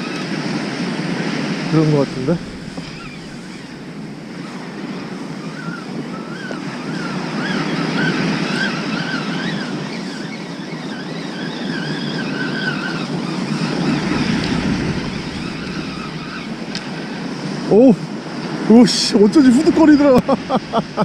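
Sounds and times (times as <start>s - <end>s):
surf breaking on beach: 0.6s - 6.1s, 13.1s - 21.0s.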